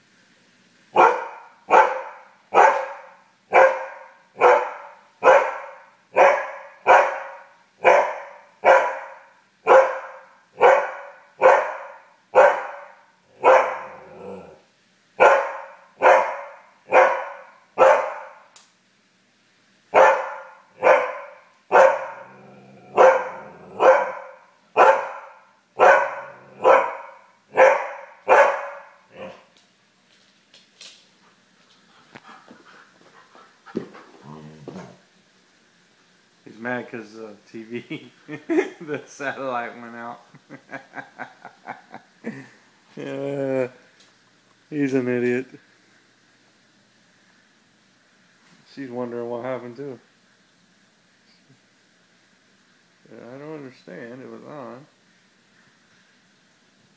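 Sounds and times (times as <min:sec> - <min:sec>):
dog barking: 0:01.0 - 0:14.0, 0:15.2 - 0:18.4, 0:19.9 - 0:22.3, 0:22.9 - 0:29.4.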